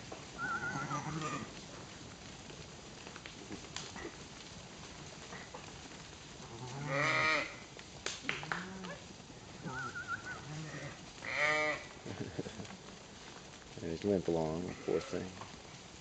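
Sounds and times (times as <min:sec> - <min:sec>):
sheep bleating: 0:00.4 - 0:01.6, 0:06.5 - 0:07.6, 0:09.6 - 0:12.0.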